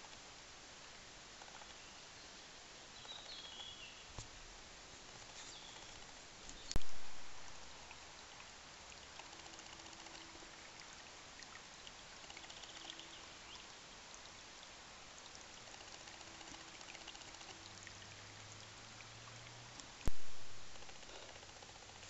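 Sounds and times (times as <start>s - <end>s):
creek babbling over stones: 0.1s - 22.0s
sharp knock: 20.1s - 20.7s.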